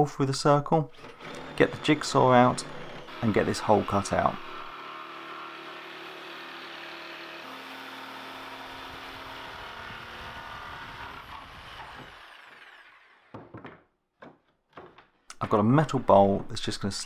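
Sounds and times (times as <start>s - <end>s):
jigsaw cutting wood: 0.9s - 13.4s
short knocks: 13.3s - 15.1s.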